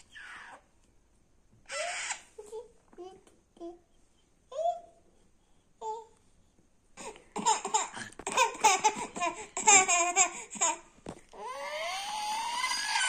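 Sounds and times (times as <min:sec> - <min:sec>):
toddler laughing: 0:07.4 - 0:10.8.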